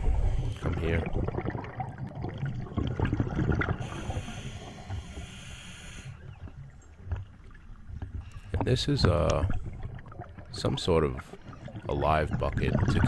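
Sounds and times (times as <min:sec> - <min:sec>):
exhalation bubbling underwater: 0:00.0 - 0:04.7, 0:08.6 - 0:13.0
air hissing through regulator: 0:03.8 - 0:06.2.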